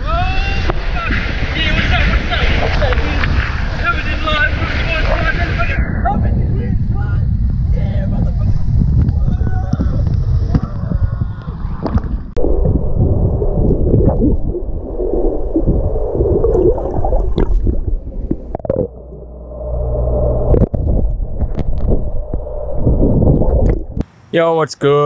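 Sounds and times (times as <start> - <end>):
underwater gurgling and bubbling: 10.0 - 24.0.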